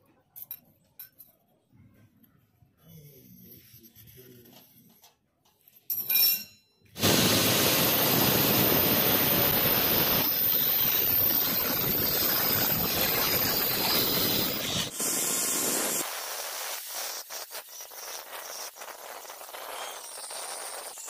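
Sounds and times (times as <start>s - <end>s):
grinder boring into marble: 7.0s - 21.0s.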